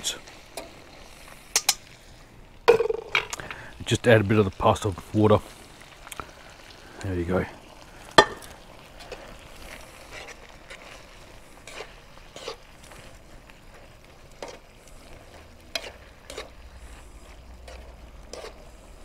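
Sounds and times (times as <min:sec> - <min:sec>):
sauce sizzling: 0:00.0 - 0:19.0
metal tongs clicking on a pan: 0:01.5 - 0:01.9.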